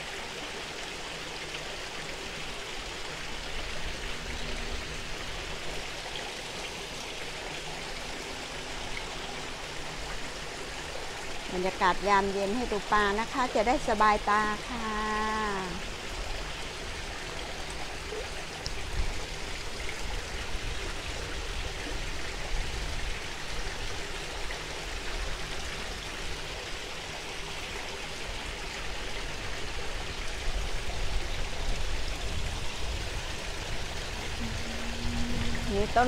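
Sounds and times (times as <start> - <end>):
waterfall splashing into pond: 0.0 - 36.0
wind rumble on microphone: 18.6 - 24.1, 30.3 - 36.0.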